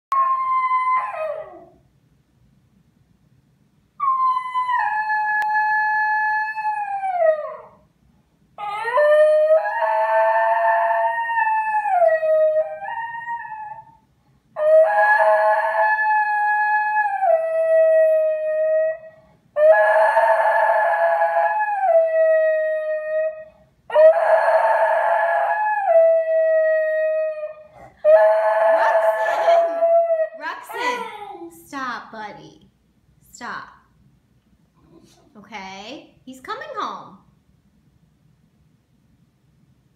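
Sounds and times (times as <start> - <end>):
dog howling: 14.6 - 31.5.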